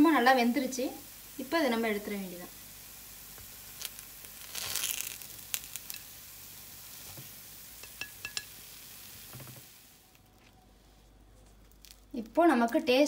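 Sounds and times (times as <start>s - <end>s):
dumplings sizzling in oil: 0.0s - 10.4s
wooden skewer tapping pan: 7.8s - 8.5s.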